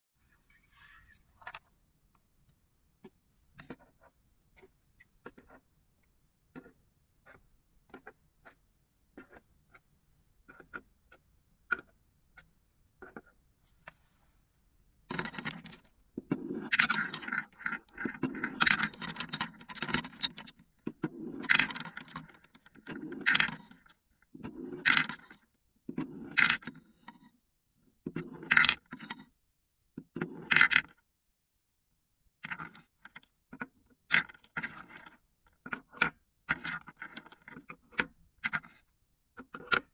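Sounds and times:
wooden spoon scraping bowl: 0.3 - 1.6.

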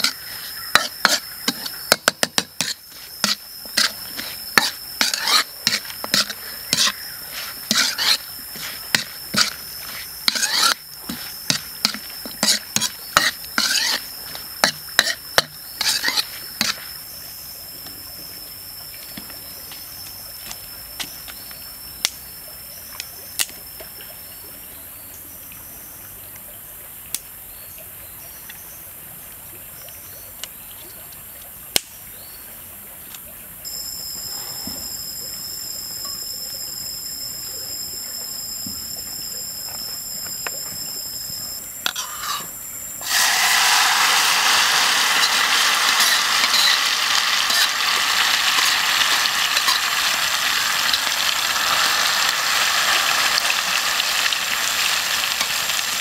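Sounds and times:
metal spatula scraping wok: 0.0 - 16.8, 41.9 - 52.2.

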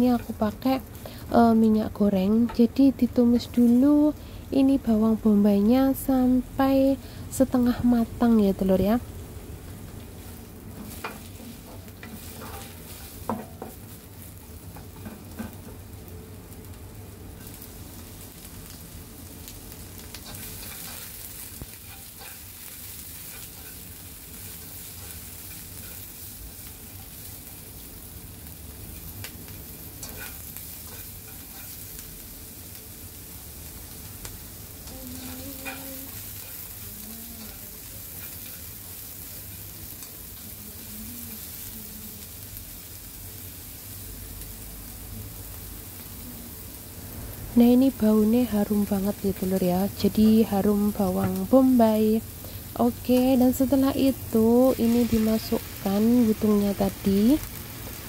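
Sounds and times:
onions sizzling in oil: 0.0 - 58.0
utensils tapping on pan: 10.8 - 13.9, 14.7 - 15.8, 20.2 - 22.5, 23.2 - 24.0, 30.0 - 31.8, 34.8 - 36.6, 50.2 - 51.5.

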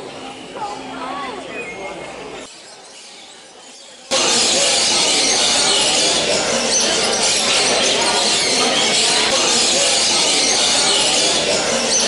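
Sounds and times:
many voices: 0.0 - 12.0
parrots calling and screeching: 2.5 - 12.0.

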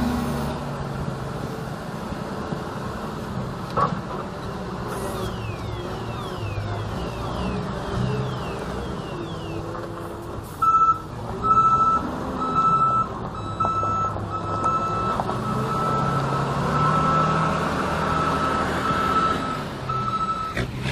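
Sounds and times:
forklift engine running: 0.0 - 20.9
reversing alarm beeping: 5.1 - 9.7, 10.6 - 17.5, 18.1 - 20.6.

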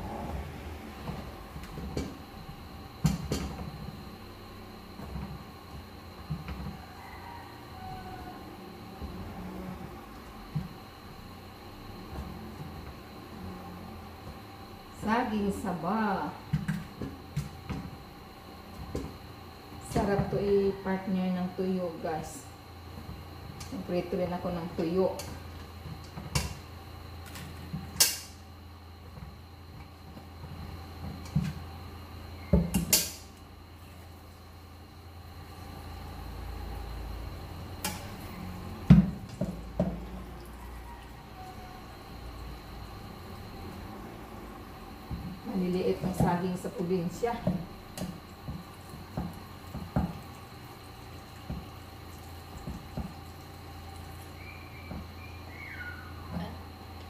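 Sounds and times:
tap water running into metal pot: 48.0 - 54.4.

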